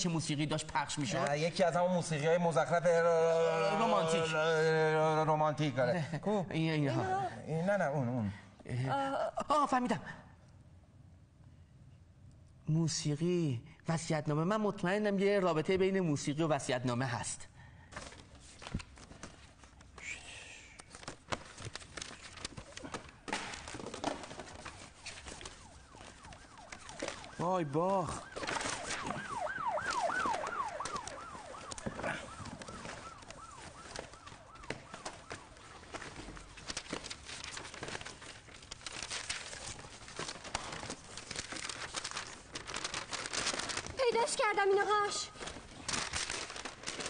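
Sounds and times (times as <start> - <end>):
vinyl records and sleeves shuffled: 20.8 - 47.0.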